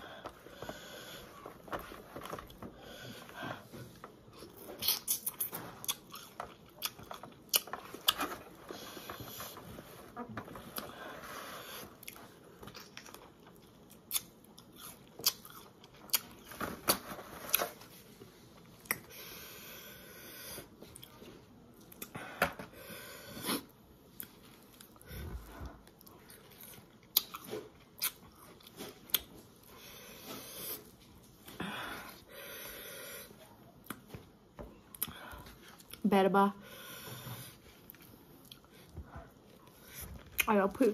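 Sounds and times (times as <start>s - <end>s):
person chewing: 3.9s - 9.7s, 10.5s - 16.5s, 20.8s - 22.2s, 25.6s - 31.0s, 37.6s - 38.9s.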